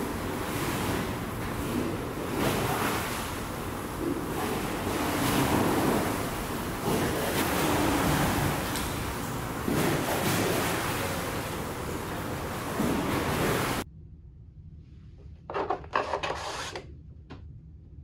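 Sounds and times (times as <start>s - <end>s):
sea noise: 0.0s - 13.8s.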